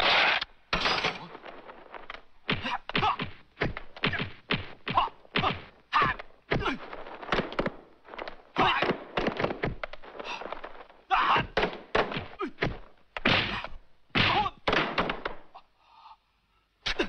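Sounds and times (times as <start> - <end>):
punch impacts: 0.1 - 15.5.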